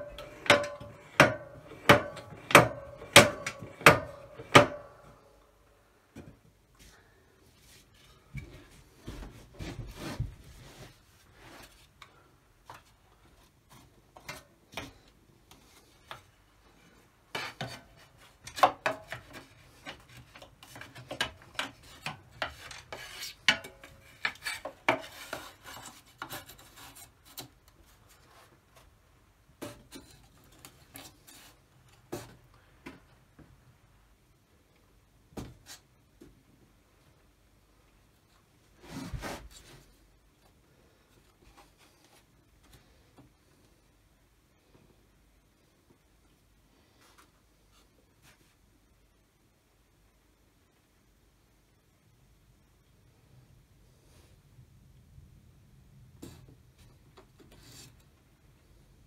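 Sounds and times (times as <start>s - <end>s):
wooden and metal parts knocking: 0.0s - 5.0s.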